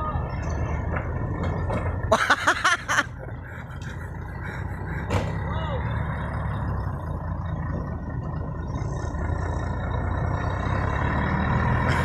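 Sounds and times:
truck diesel engine under load: 0:00.0 - 0:12.0.

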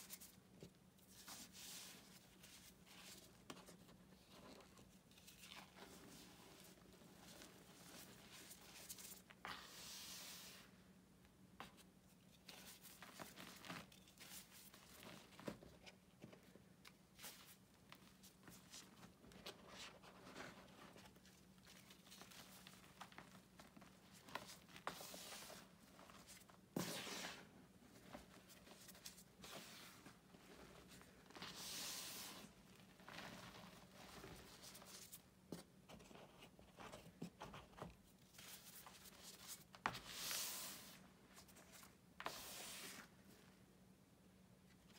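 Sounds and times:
soft swishes of powder: 0:01.0 - 0:10.9, 0:24.4 - 0:35.3, 0:38.4 - 0:43.5.

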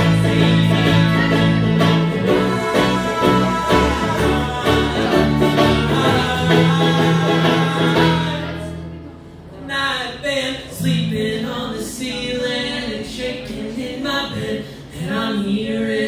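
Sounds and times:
men singing in harmony: 0:00.0 - 0:08.8
bluegrass band playing: 0:00.0 - 0:09.7.

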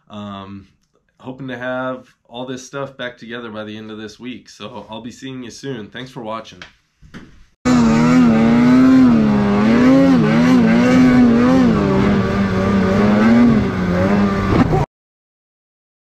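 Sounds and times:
snowmobile engine revving: 0:07.7 - 0:14.8.

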